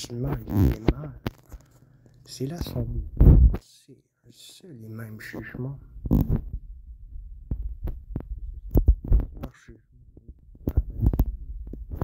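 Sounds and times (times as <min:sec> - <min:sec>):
low thumps and clicks: 0:02.6 - 0:03.6, 0:06.0 - 0:09.5, 0:10.1 - 0:12.0.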